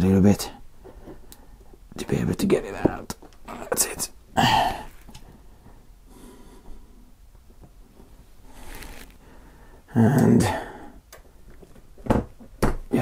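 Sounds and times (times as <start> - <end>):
soft breaths: 0.5 - 1.9, 4.4 - 11.8.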